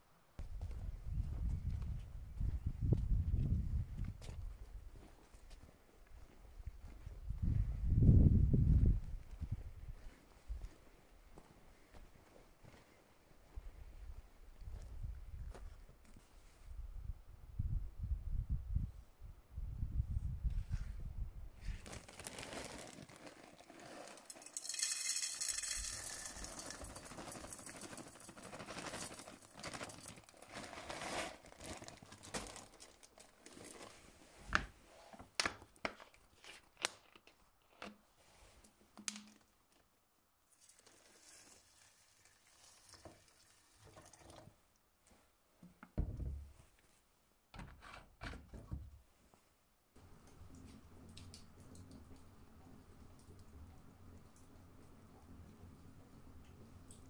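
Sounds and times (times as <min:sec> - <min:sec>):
plastic bag crinkling: 0:21.8 - 0:34.0
water poured into pot: 0:22.7 - 0:28.4, 0:40.6 - 0:44.5.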